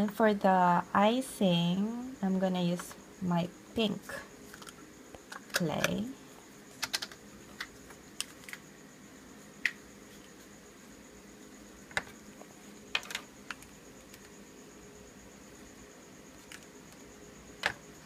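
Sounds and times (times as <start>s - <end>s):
faint steady hum: 0.0s - 18.0s
plastic pieces clicking and knocking: 6.8s - 8.6s, 12.9s - 14.3s.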